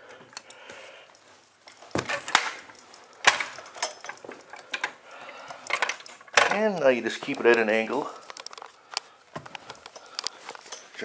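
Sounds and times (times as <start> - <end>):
carpet stretcher rustling: 1.2 - 5.5.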